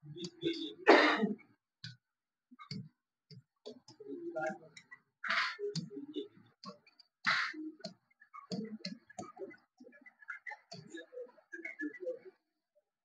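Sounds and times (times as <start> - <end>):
taps on glass touchscreen: 2.7 - 9.6.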